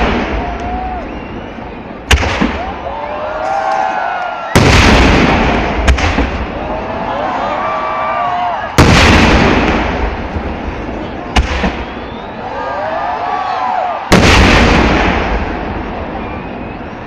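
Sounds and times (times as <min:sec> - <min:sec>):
firework sharp crack: 0:00.0 - 0:01.1, 0:02.0 - 0:02.8, 0:04.6 - 0:06.8, 0:08.7 - 0:12.3, 0:14.1 - 0:16.0
fireworks blasts: 0:00.0 - 0:17.0.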